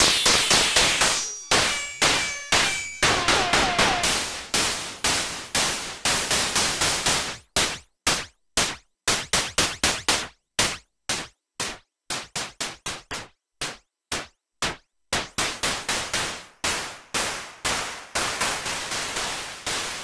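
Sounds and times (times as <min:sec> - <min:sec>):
metallic hi-hat-like hits: 0:00.0 - 0:07.8, 0:15.4 - 0:20.0.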